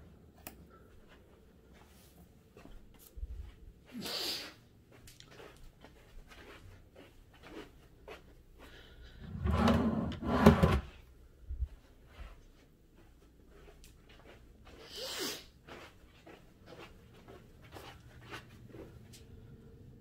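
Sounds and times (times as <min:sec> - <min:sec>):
wooden drawer sliding: 0:09.3 - 0:10.9.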